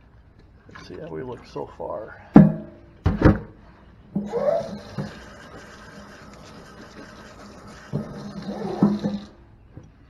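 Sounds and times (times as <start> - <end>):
water hissing from hose sprayer: 4.2 - 9.4
pump knocking in steel sink: 7.9 - 9.4.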